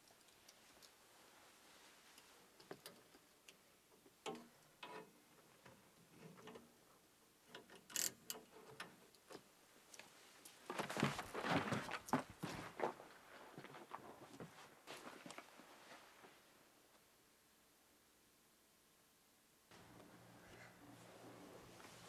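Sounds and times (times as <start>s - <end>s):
rustling and knocking of scuffle: 10.6s - 13.0s.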